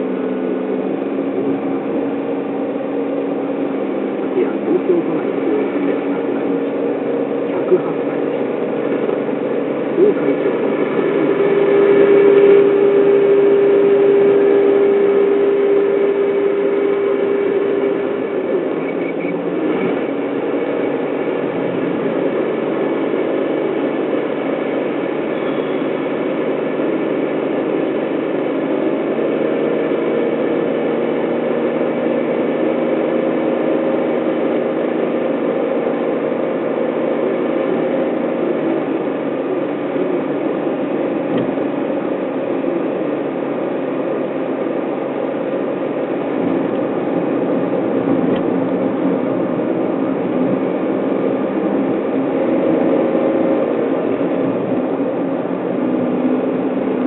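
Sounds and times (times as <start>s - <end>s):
humming tones: 0.0s - 21.4s
car engine and road noise: 0.0s - 57.0s.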